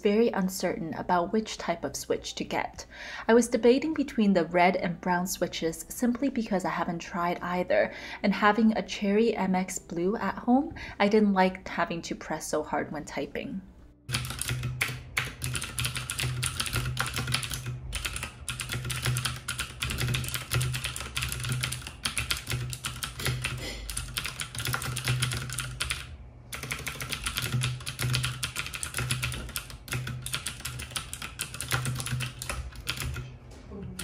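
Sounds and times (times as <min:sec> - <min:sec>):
mechanical keyboard typing: 0:14.1 - 0:33.3.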